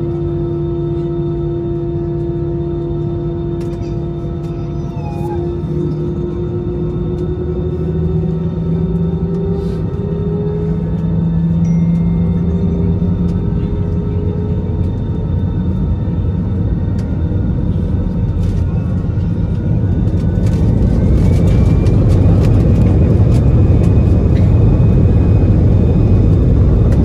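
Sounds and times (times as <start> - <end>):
jet engines rumbling and whining: 0.0 - 27.0.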